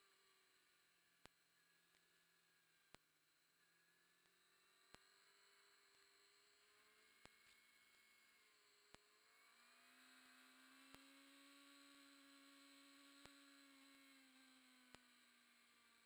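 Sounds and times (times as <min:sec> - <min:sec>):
faint electronic hum: 0:00.0 - 0:16.0.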